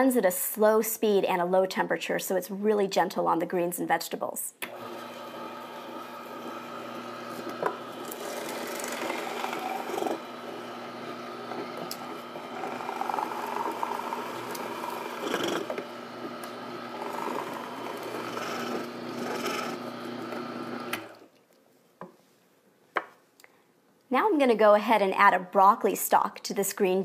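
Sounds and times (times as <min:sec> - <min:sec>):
juicer motor hum: 0:04.6 - 0:21.3.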